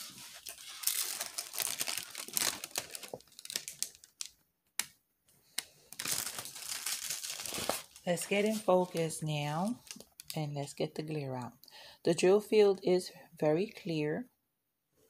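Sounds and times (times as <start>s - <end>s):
plastic film crinkling: 0.0s - 4.4s, 5.9s - 10.6s.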